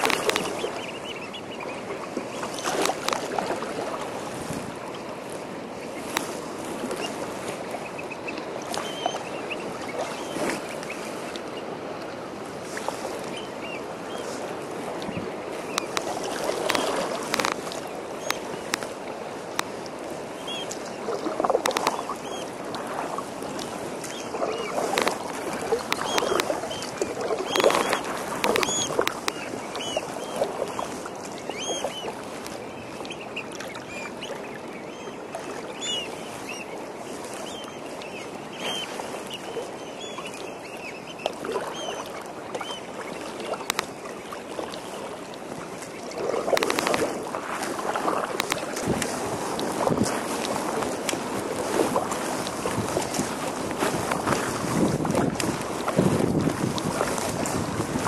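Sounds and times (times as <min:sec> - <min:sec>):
birds calling: 0:00.0 - 0:03.6, 0:06.9 - 0:11.7, 0:15.0 - 0:19.0, 0:20.2 - 0:22.6, 0:23.6 - 0:44.6
kayak paddle splashing: 0:00.0 - 0:58.0.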